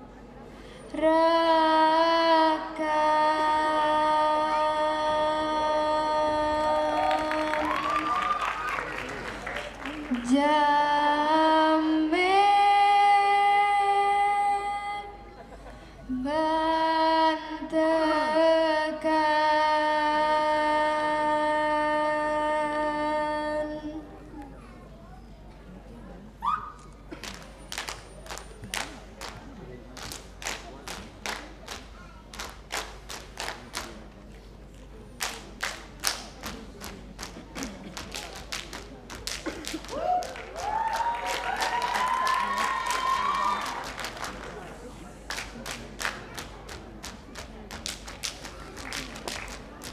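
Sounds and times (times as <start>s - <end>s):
person singing long held notes: 0.9s - 8.2s
claps and body slaps in unison: 30.0s - 33.9s, 35.2s - 44.6s, 45.3s - 49.9s.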